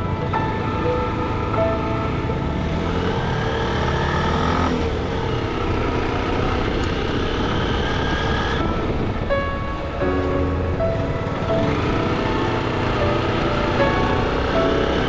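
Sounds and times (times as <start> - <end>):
motorcycle engine drone: 0.0 - 15.0
wind rush: 4.8 - 15.0.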